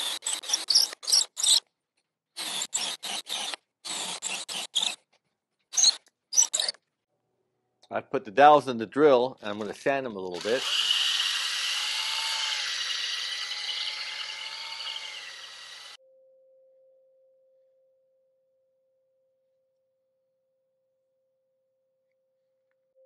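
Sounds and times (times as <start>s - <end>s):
cordless drill motor whine: 10.4s - 16.0s.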